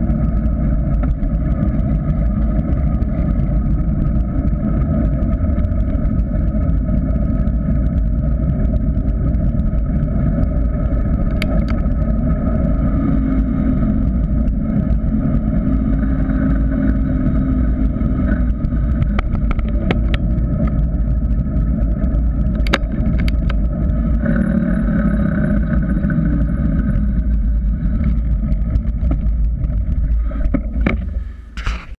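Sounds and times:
wind buffeting microphone: 0.0 - 31.9
tyre noise on tarmac: 0.0 - 32.0.

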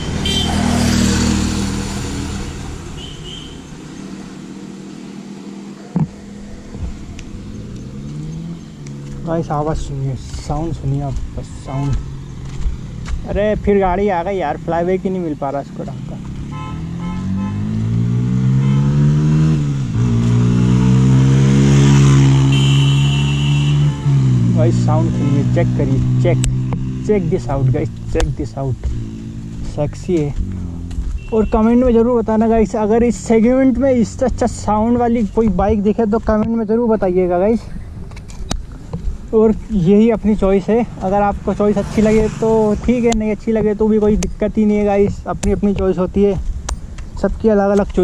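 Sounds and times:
motor scooter passing by: 0.0 - 9.2, 40.9 - 43.0
motorcycle accelerating past: 0.0 - 9.2, 16.0 - 28.1, 40.8 - 43.1
low road hum: 0.0 - 48.0.

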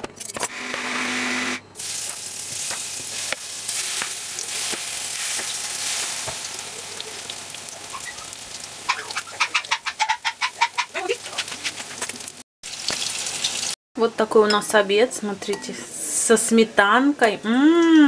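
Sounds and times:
oil sizzling in a frying pan: 1.8 - 11.2, 12.2 - 13.8.

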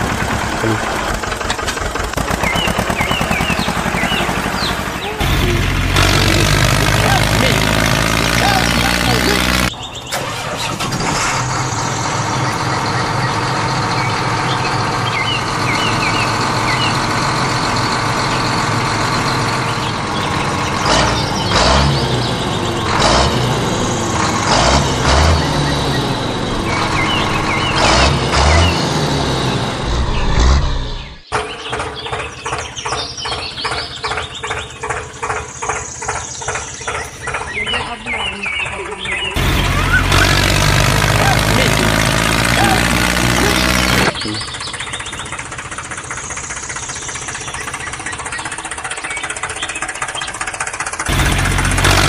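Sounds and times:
diesel engine running: 0.0 - 52.0
rhythmic chugging: 2.1 - 9.7, 38.7 - 49.9.

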